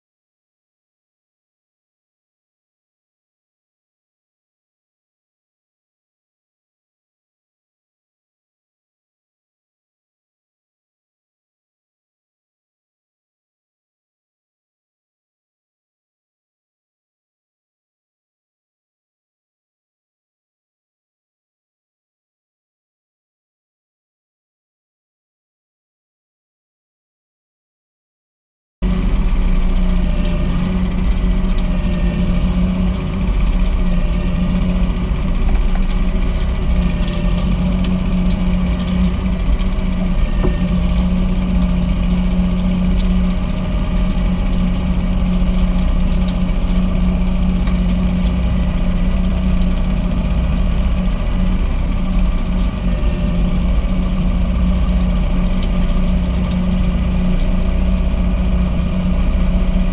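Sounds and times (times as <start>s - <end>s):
compost turner running: 28.8s - 59.9s
tractor engine running: 28.8s - 59.9s.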